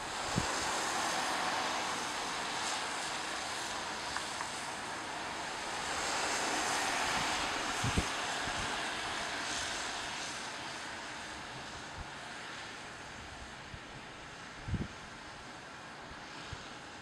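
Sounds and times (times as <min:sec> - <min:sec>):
steady outdoor rushing noise: 0:00.0 - 0:17.0.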